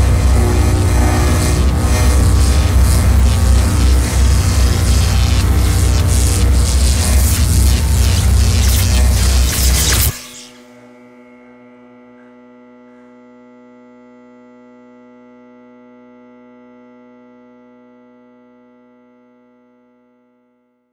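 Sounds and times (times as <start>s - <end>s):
electronic drone: 0.0s - 13.0s.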